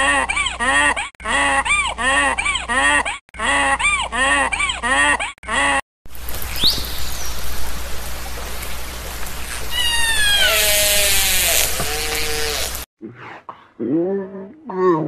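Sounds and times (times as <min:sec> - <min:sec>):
orca squeal: 0:09.7 - 0:12.7.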